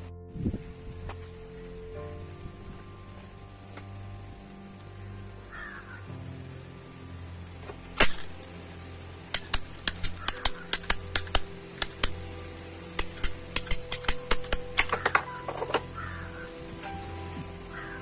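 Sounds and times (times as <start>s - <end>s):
ratchet pipe cutter clicking: 9.3s - 12.2s, 13.0s - 15.7s.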